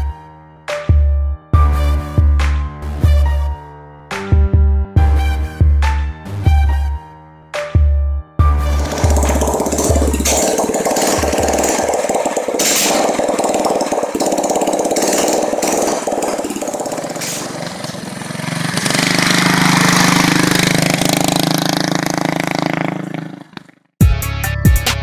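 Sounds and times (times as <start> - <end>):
small engine revving: 8.7 - 23.9.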